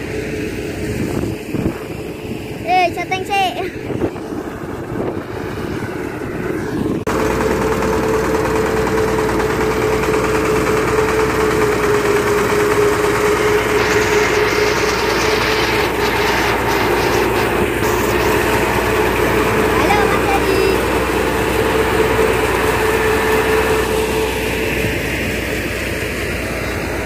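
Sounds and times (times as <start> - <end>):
thresher diesel engine whine: 0.0 - 27.0
rough rushing hiss: 12.5 - 21.6.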